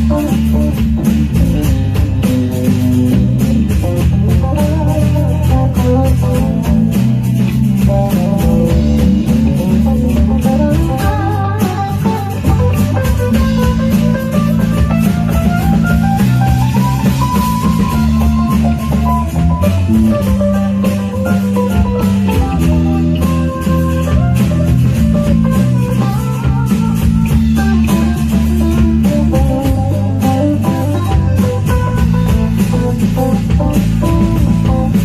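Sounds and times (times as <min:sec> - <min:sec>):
bass: 0:00.0 - 0:35.0
drums: 0:00.0 - 0:35.0
guitar melody: 0:00.0 - 0:35.0
strummed guitar chords: 0:00.0 - 0:35.0.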